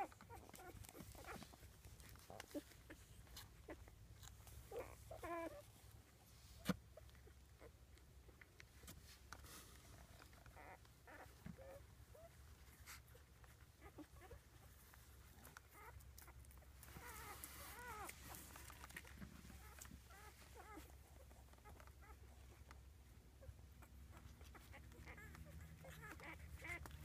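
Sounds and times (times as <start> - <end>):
puppies squeaking and whimpering: 0.0 - 5.8, 9.9 - 22.8, 23.4 - 27.0
puppies squealing: 4.7 - 5.7, 16.9 - 22.2, 23.8 - 27.0
rustling on bedding: 8.6 - 22.8.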